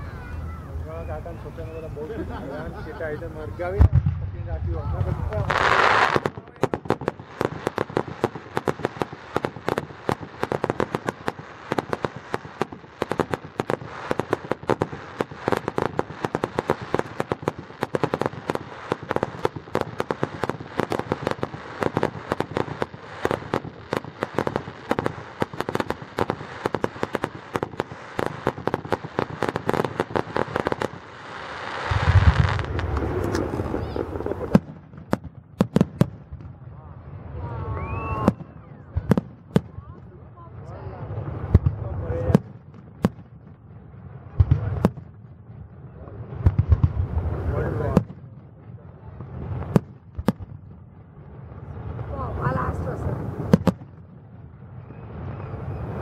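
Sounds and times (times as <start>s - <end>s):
firework crackles and pops: 0.0s - 56.0s
firework boom: 3.6s - 31.0s, 31.8s - 39.9s.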